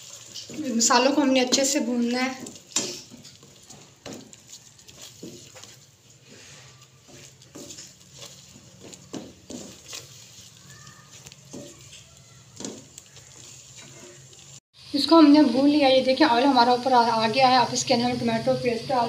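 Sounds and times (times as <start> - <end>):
spatula scraping wok: 0.0 - 14.6.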